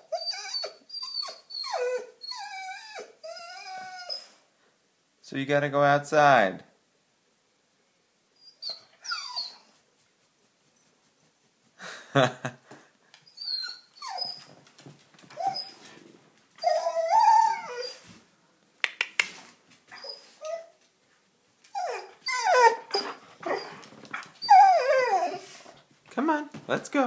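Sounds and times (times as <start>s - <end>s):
dog whining and yowling: 0.0s - 4.4s, 8.4s - 9.8s, 13.2s - 14.6s, 15.3s - 16.0s, 16.6s - 18.1s, 19.9s - 20.8s, 21.7s - 25.8s.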